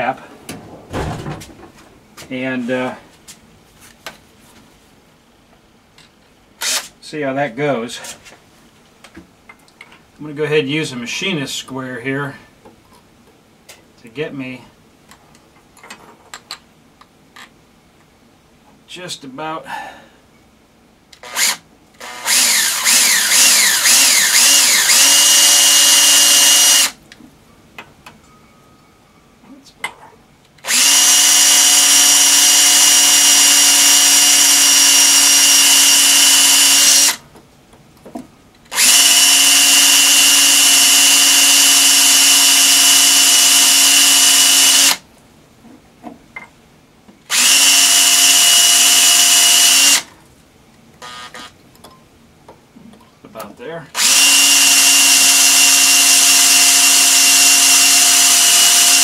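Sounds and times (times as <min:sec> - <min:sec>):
power drill drilling into metal: 0:06.6 - 0:06.9, 0:21.2 - 0:27.0, 0:30.6 - 0:37.2, 0:38.7 - 0:45.0, 0:47.3 - 0:50.1, 0:51.0 - 0:51.5, 0:54.0 - 0:59.0.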